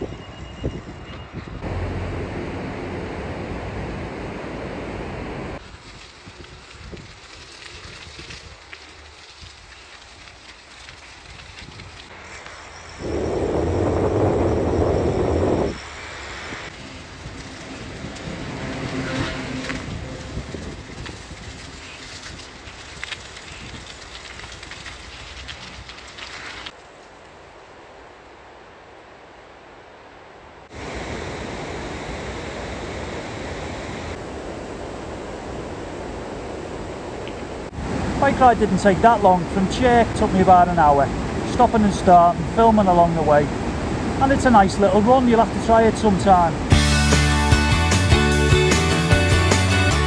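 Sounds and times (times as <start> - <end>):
bicycle tyres rumbling: 5.5 - 27.0
air rushing past: 12.2 - 21.7.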